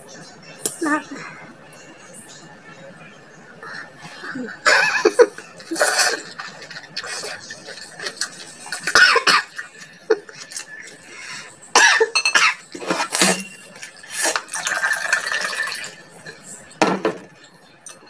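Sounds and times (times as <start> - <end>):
woman coughing: 8.9 - 9.5, 11.8 - 12.6.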